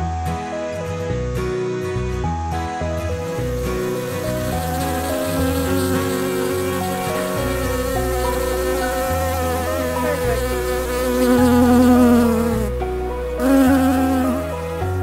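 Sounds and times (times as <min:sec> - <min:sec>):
background music with bass line: 0:00.0 - 0:15.0
cartoon bee buzzing: 0:03.2 - 0:12.8, 0:13.4 - 0:14.9.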